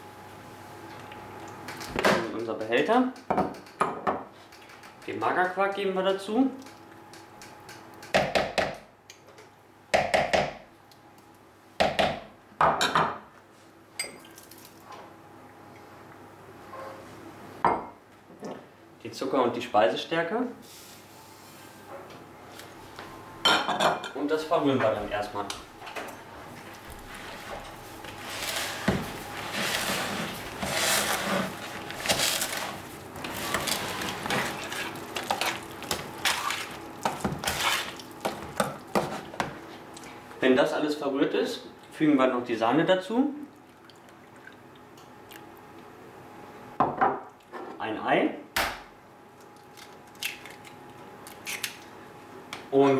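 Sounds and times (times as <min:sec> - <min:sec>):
spatula scraping plastic tub: 0:28.2 - 0:35.6.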